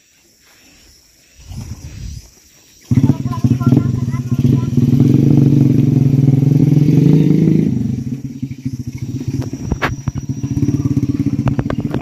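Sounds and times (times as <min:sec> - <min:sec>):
small engine running: 0:02.9 - 0:12.0.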